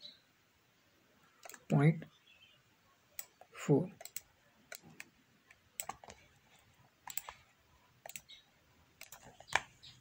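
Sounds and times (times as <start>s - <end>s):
computer mouse clicks: 1.4s - 1.7s, 3.2s - 6.3s, 7.0s - 7.4s, 8.0s - 8.4s, 9.0s - 10.0s.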